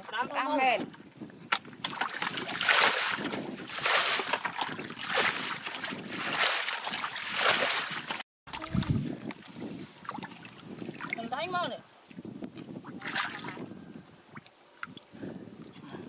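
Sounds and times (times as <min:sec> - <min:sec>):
muddy water splashing: 0:00.1 - 0:11.8, 0:12.8 - 0:13.7.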